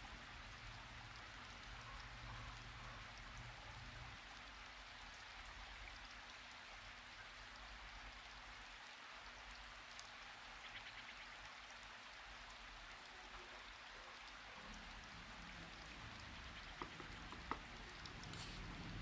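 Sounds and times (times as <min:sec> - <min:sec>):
faint steady hiss: 0:00.0 - 0:19.0
faint ticks: 0:13.2 - 0:19.0.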